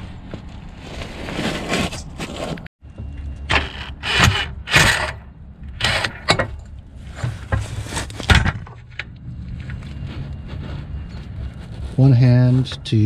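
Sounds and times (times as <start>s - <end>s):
tools clanking on metal: 4.7s - 7.7s.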